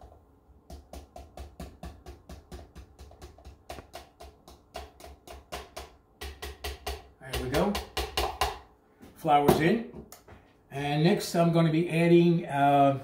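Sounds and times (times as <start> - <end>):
measuring cup tapping on blender jar: 0.7 - 8.6.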